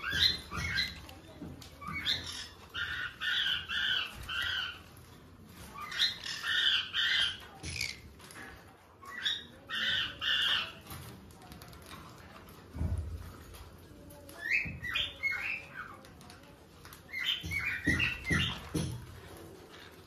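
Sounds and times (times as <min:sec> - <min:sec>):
parrots squawking: 0:00.0 - 0:01.1, 0:01.8 - 0:05.1, 0:05.7 - 0:08.4, 0:09.0 - 0:11.0.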